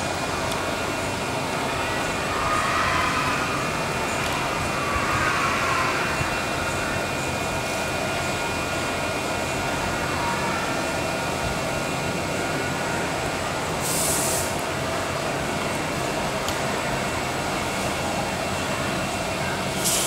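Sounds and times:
mechanical background noise: 0:00.0 - 0:20.0
brief high hiss: 0:13.8 - 0:14.6, 0:19.8 - 0:20.0.

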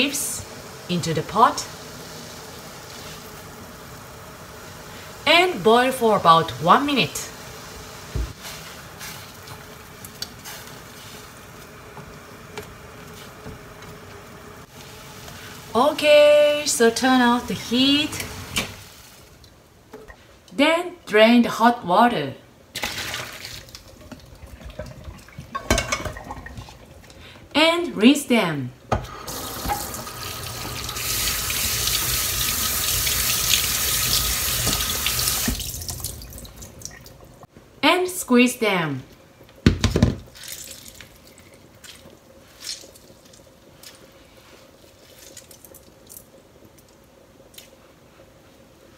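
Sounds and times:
water boiling in a saucepan: 0:00.0 - 0:20.5, 0:22.6 - 0:27.6, 0:28.8 - 0:37.6, 0:38.3 - 0:48.9
tap water splashing into sink: 0:28.9 - 0:32.0, 0:33.5 - 0:37.1.

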